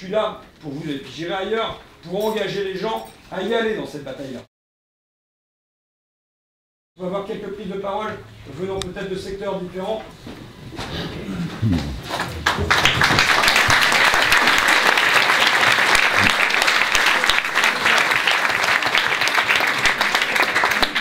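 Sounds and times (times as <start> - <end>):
audience applauding: 12.0 - 21.0.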